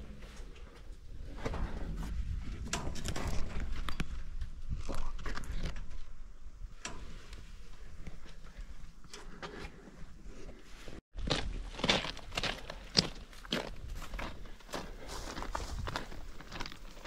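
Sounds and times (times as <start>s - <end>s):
footsteps with knocks and scuffs: 7.9s - 17.0s.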